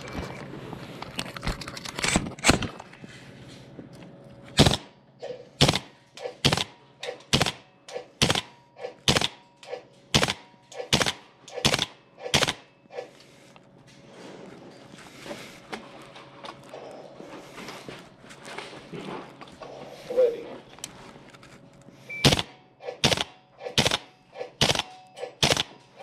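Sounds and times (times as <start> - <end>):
airsoft rifle shots: 4.6 - 13.1, 22.2 - 25.8.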